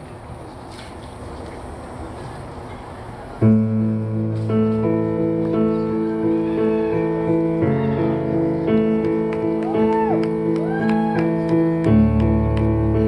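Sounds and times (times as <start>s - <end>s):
piano and guitar ballad: 3.4s - 13.0s.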